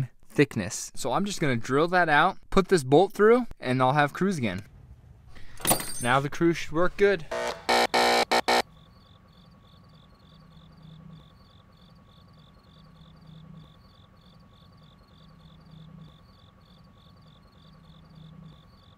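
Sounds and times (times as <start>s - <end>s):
low hum: 7.3s - 9.3s
crickets chirping: 8.6s - 18.9s.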